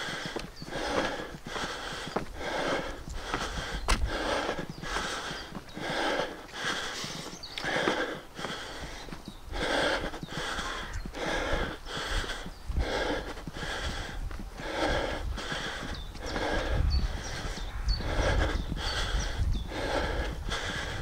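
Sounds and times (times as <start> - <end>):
man breathing while jogging: 0.0 - 21.0
low rumble: 14.0 - 21.0.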